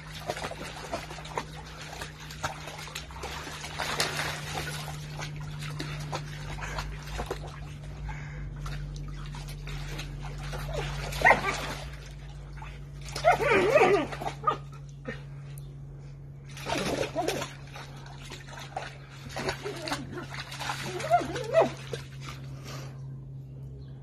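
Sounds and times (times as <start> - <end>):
splashing water: 0.0 - 14.8, 16.4 - 22.8
steady low hum: 0.0 - 24.0
dog yipping and whining: 10.7 - 11.8, 13.1 - 14.7, 20.8 - 21.9.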